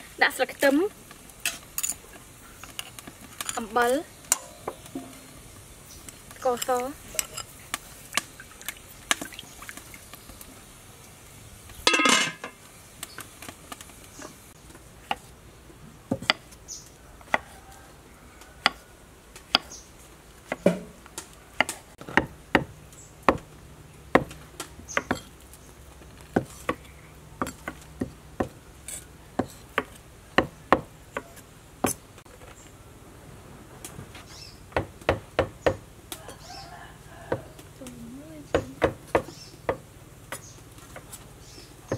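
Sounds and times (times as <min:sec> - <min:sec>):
knife chopping on wooden board: 0:20.5 - 0:20.9, 0:24.1 - 0:25.3.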